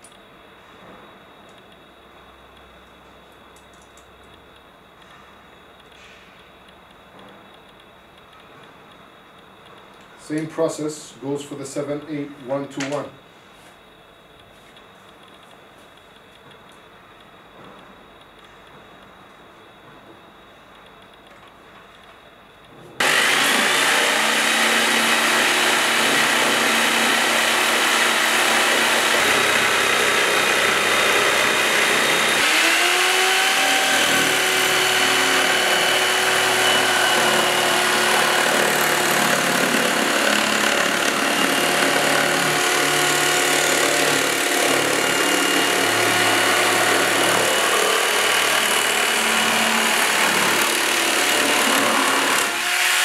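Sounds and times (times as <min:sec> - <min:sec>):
jigsaw sawing plywood: 0:23.0 - 0:53.0.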